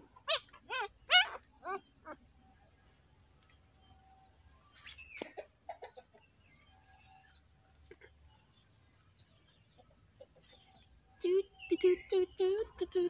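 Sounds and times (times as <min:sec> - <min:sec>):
low animal calls: 0:00.0 - 0:02.3
high animal chirps: 0:00.2 - 0:02.2.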